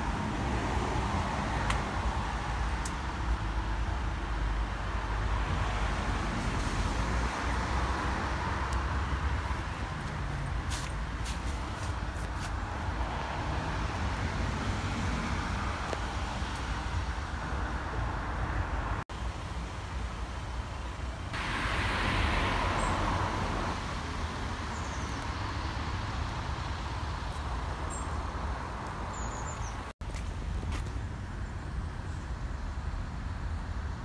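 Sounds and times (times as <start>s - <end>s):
road traffic rumble: 0.0s - 34.0s
vehicle passing: 21.4s - 29.7s.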